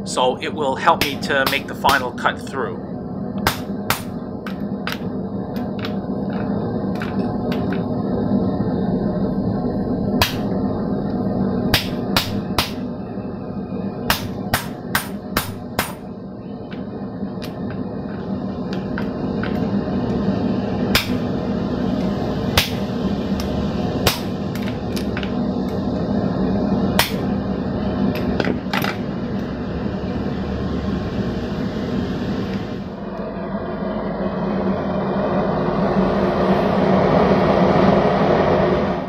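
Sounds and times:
steady low hum: 0:00.0 - 0:39.0
hammer striking hot metal: 0:01.0 - 0:02.2, 0:03.4 - 0:04.1, 0:10.2 - 0:10.5, 0:11.7 - 0:12.8, 0:14.0 - 0:16.1, 0:20.9 - 0:21.2, 0:22.5 - 0:22.9, 0:24.0 - 0:25.3, 0:27.0 - 0:27.2.

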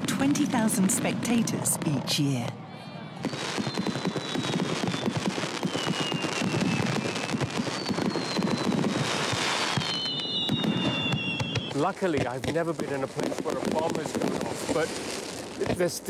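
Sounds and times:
fireworks bursting and crackling: 0:00.0 - 0:02.5, 0:03.2 - 0:16.0
falling firework whistles: 0:03.2 - 0:12.0.

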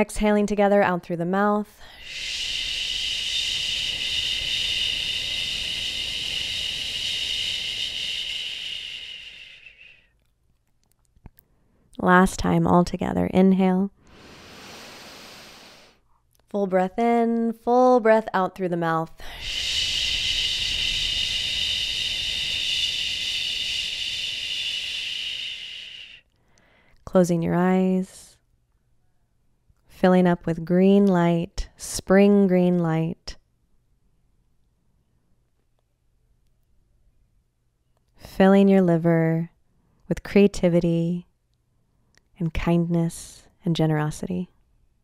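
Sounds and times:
woman exhaling shhh: 0:01.8 - 0:10.0, 0:14.0 - 0:16.0, 0:19.2 - 0:26.8.

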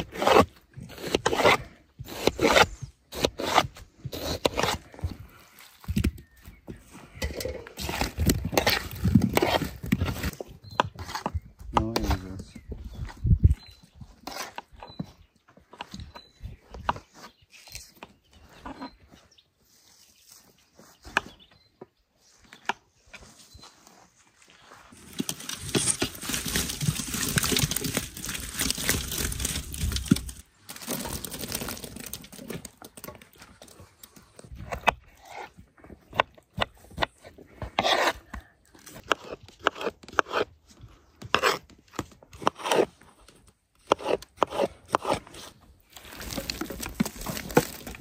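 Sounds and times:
crunchy scrapes: 0:06.8 - 0:12.5, 0:23.2 - 0:48.0
food crunching and tearing: 0:25.1 - 0:32.8.

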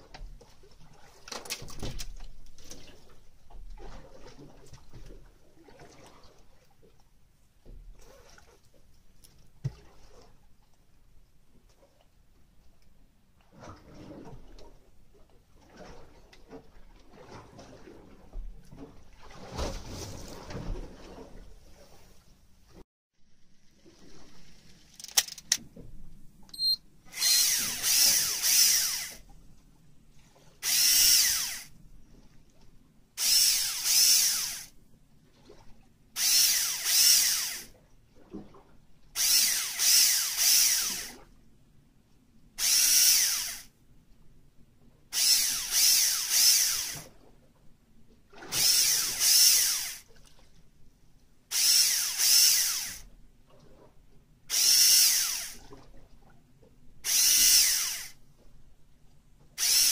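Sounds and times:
fishing reel motor whirring: 0:27.1 - 0:29.2, 0:30.6 - 0:31.7, 0:33.2 - 0:34.7, 0:36.2 - 0:37.7, 0:39.2 - 0:41.2, 0:42.6 - 0:43.7, 0:45.1 - 0:47.1, 0:48.5 - 0:50.1, 0:51.5 - 0:53.0, 0:54.5 - 0:55.6, 0:57.0 - 0:58.2, 0:59.6 - 0:59.9.

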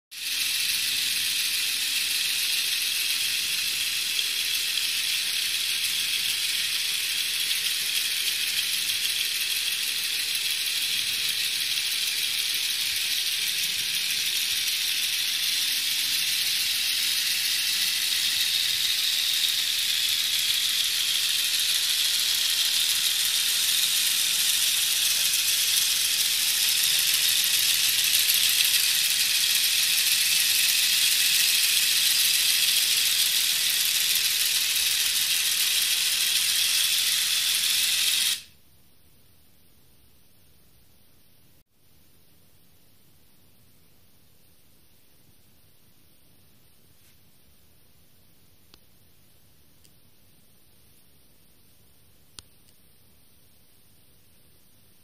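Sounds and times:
toy motors and gears whirring: 0:00.1 - 0:38.6.

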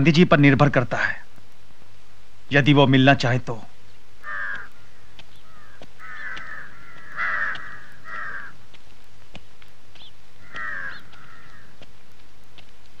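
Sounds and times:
crows cawing: 0:04.2 - 0:08.9, 0:09.9 - 0:12.0.

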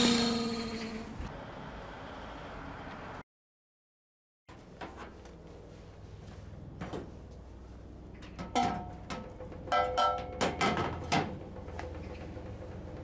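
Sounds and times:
metal clanks and knocks: 0:08.2 - 0:13.0.

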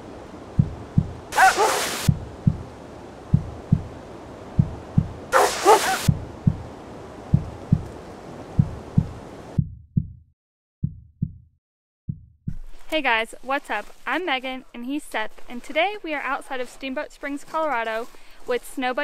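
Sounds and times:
low double thumps: 0:00.5 - 0:01.4, 0:02.0 - 0:05.4, 0:06.0 - 0:11.5, 0:12.1 - 0:12.6
dog barking: 0:01.3 - 0:02.1, 0:05.3 - 0:06.1.

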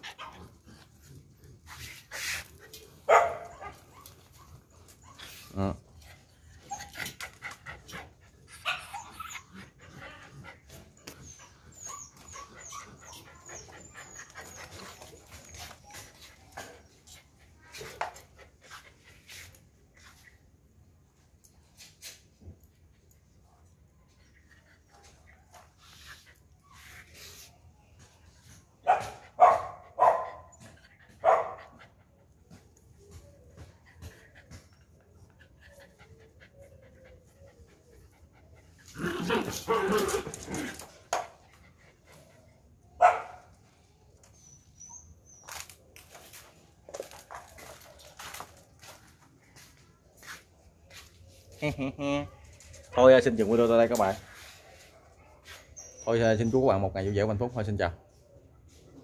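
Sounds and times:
dog barking: 0:03.1 - 0:03.7, 0:28.9 - 0:30.4, 0:31.2 - 0:31.6, 0:43.0 - 0:43.4.

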